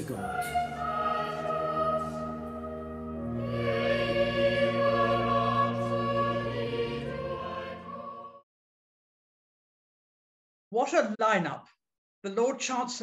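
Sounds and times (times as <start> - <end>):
organ: 0.0 - 8.4
choir singing sustained chords: 0.0 - 8.5.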